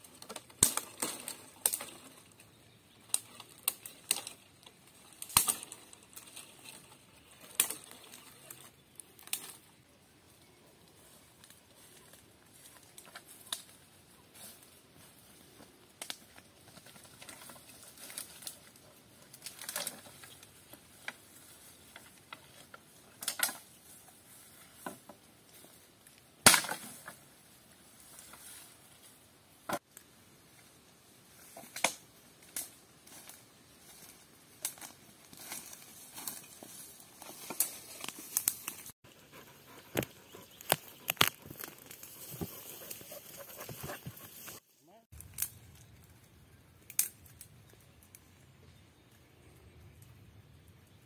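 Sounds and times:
dead wood snapping: 0:00.2 - 0:02.1, 0:03.1 - 0:04.4, 0:05.2 - 0:05.9, 0:26.4 - 0:27.0, 0:31.7 - 0:32.8, 0:39.8 - 0:43.6, 0:46.8 - 0:48.2
rustling in tall grass: 0:30.4 - 0:44.8.

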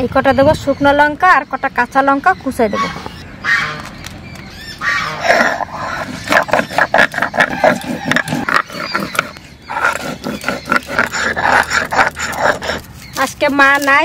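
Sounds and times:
stone grinding on stone slab: 0:05.4 - 0:14.0.

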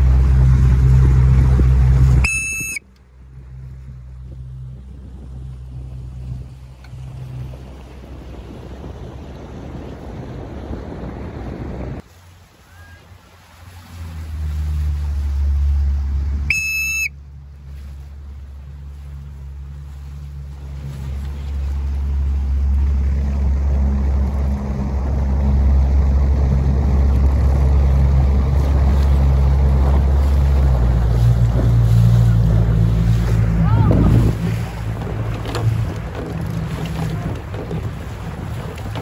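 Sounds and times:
motorboat engine running: 0:00.0 - 0:39.0
wind and water noise: 0:00.0 - 0:39.0
short whistle blast: 0:02.2 - 0:02.9, 0:16.5 - 0:17.2.

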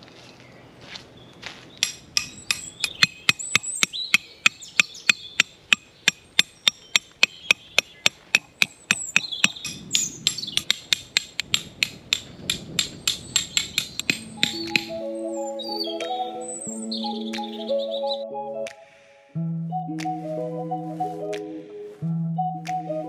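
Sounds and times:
birds chirping: 0:00.3 - 0:18.6
hammer strikes: 0:01.8 - 0:14.9.

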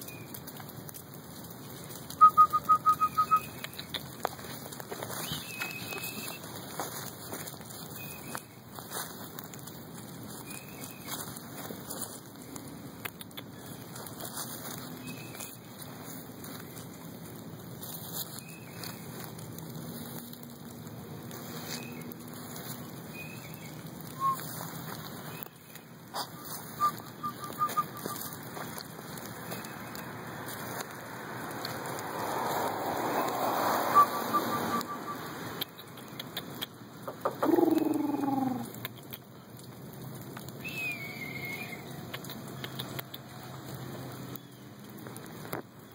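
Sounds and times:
puppy paws rustling through leaves: 0:00.0 - 0:45.9
puppy high pips: 0:26.1 - 0:28.4, 0:33.9 - 0:39.2
small clicks: 0:42.0 - 0:45.6.

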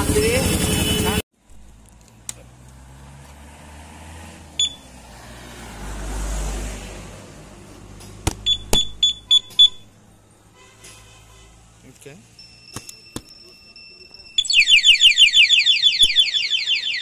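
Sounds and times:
alarm chirp and beeps: 0:08.4 - 0:09.9, 0:12.6 - 0:17.0.

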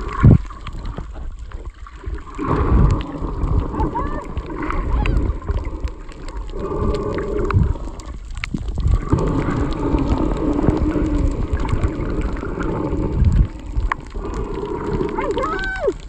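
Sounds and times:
underwater rumble and gurgling: 0:00.0 - 0:16.0.

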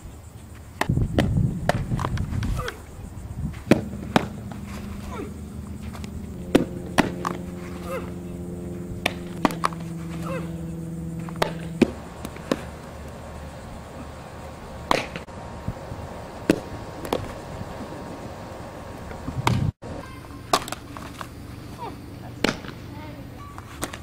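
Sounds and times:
steady hum: 0:00.8 - 0:19.8.

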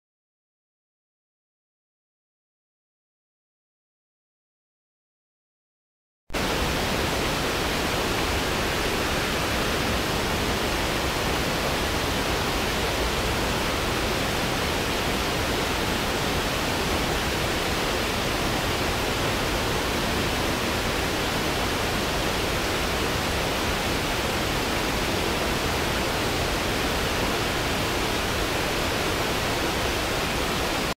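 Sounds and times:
stream running over rocks: 0:06.4 - 0:31.0.

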